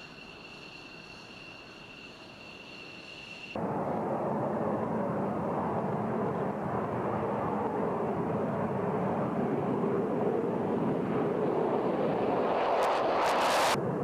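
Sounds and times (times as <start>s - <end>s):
jet engine running: 3.5s - 14.0s.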